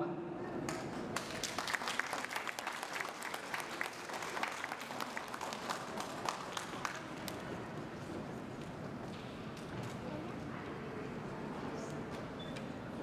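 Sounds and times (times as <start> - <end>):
audience applauding: 0.6 - 7.7.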